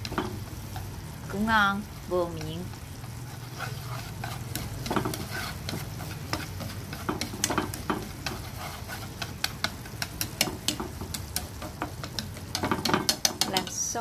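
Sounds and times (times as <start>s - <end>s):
sauce sizzling in a frying pan: 0.0s - 14.0s
spatula stirring sauce: 0.0s - 14.0s
spatula clicking against pan: 4.2s - 14.0s.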